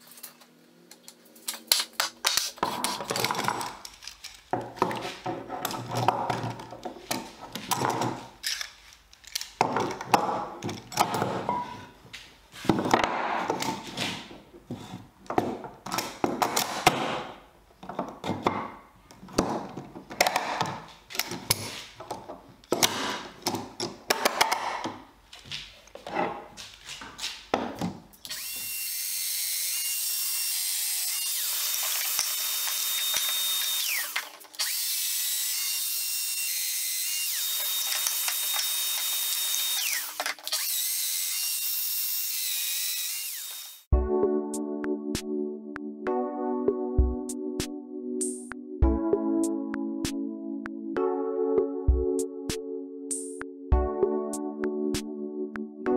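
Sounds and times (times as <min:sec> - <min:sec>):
clamps clicking and knocking: 0:01.5 - 0:11.7, 0:15.3 - 0:25.0, 0:31.2 - 0:34.8, 0:37.2 - 0:40.8
power joiner running: 0:28.3 - 0:43.9.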